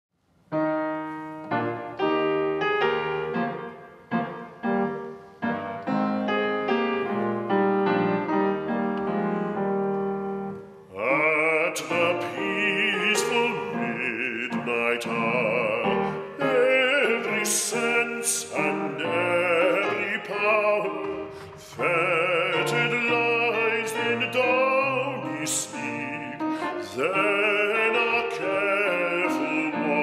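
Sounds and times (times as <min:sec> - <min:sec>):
grand piano chords: 0:00.2 - 0:30.0
baritone singing with vibrato: 0:10.8 - 0:30.0.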